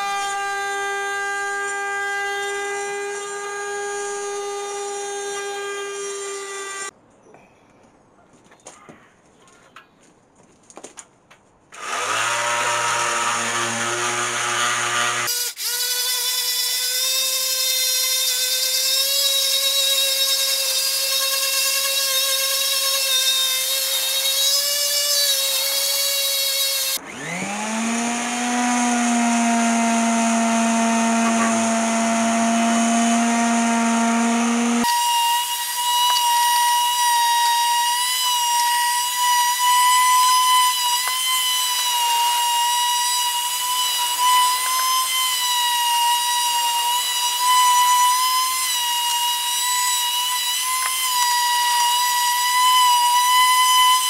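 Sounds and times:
electric hand sander running: 11.8 - 15.3, 23.6 - 54.0.

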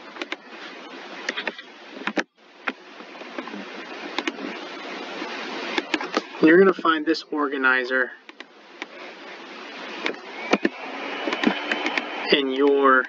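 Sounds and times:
microphone hiss: 0.0 - 13.0
computer mouse clicking: 4.2 - 4.4, 10.0 - 12.1.

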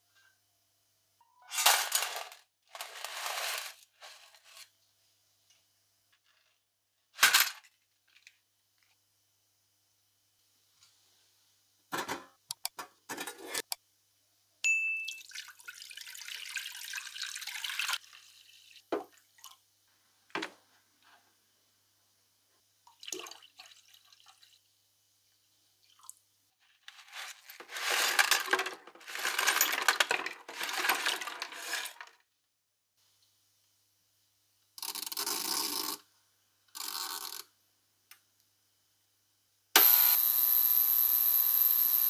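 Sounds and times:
liquid pouring: 15.2 - 18.8
metal parts splashing and clinking: 27.2 - 32.0.

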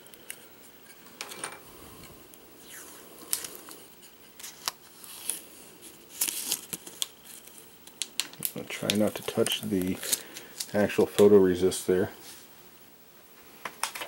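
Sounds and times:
plastic film crackles: 2.6 - 11.5
plastic film crinkling: 2.6 - 11.5
plastic film rustle: 2.6 - 12.4.

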